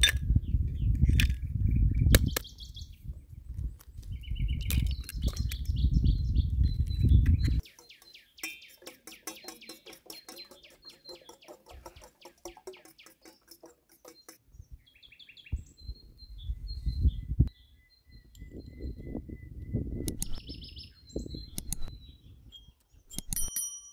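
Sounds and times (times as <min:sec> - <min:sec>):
wind buffeting microphone: 0:00.0 - 0:08.0, 0:14.5 - 0:22.6
songbirds chirping and trilling: 0:00.0 - 0:23.7.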